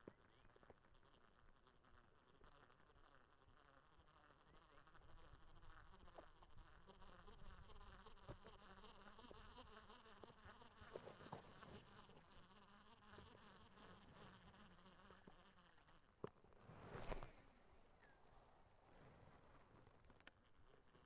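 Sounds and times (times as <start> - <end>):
flying insect buzzing: 0.0 - 16.1.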